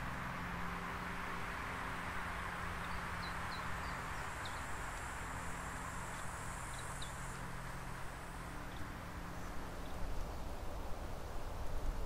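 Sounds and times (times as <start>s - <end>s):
traffic rush with low hum: 0.0s - 12.0s.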